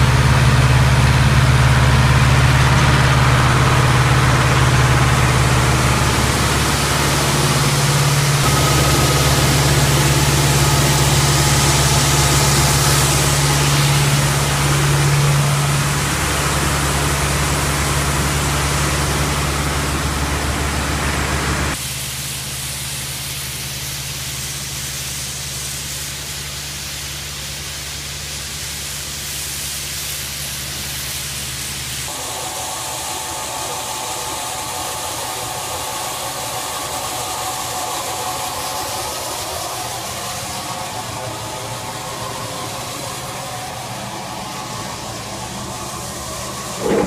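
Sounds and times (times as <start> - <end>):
rushing-air hiss: 0.0 - 19.6, 21.7 - 47.0
deep machine hum: 0.0 - 21.8, 32.1 - 47.0
high steady whine: 0.0 - 21.8, 32.0 - 47.0.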